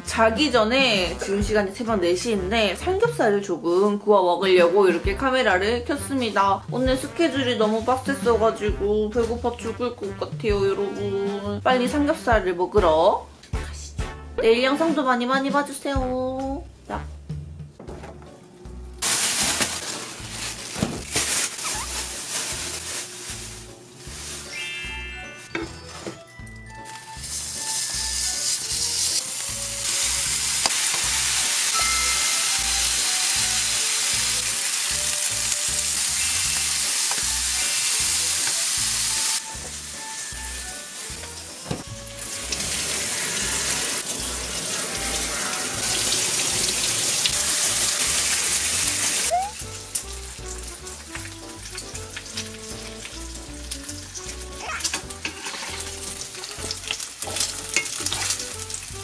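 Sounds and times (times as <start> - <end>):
background music with low beat: 8.6 - 15.1
meat sizzling in a frying pan: 26.8 - 59.0
tap running water over leaves: 41.2 - 43.1, 43.7 - 59.0.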